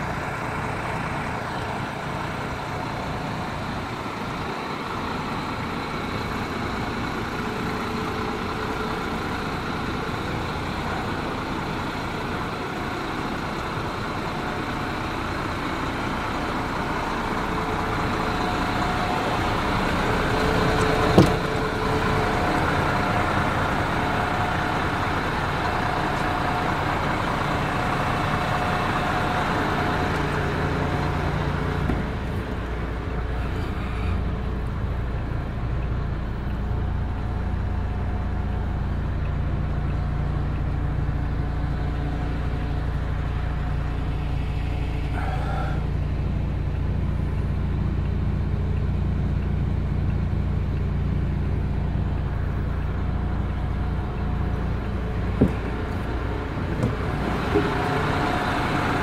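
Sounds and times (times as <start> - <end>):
truck diesel engine idling: 0.0 - 59.0.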